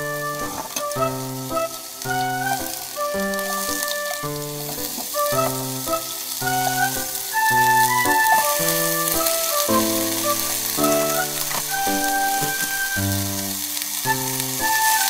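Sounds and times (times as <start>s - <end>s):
background music: 0.0s - 15.0s
food sizzling in frying pan: 0.0s - 15.0s.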